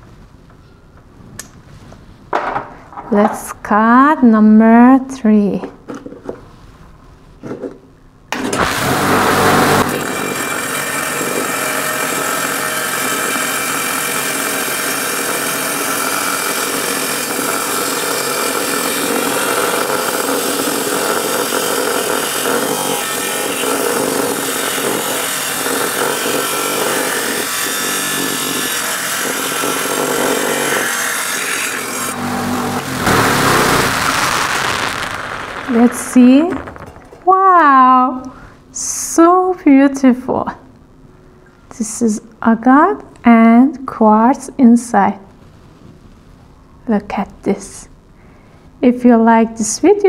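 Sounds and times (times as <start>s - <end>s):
saw blade grinding through stone: 9.1s - 34.3s.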